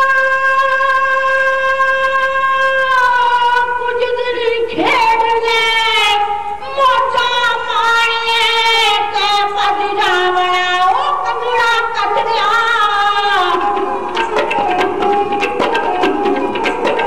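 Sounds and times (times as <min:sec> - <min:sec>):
woman singing long bending notes: 0:00.0 - 0:17.0
rapid hand drum strokes: 0:13.2 - 0:17.0.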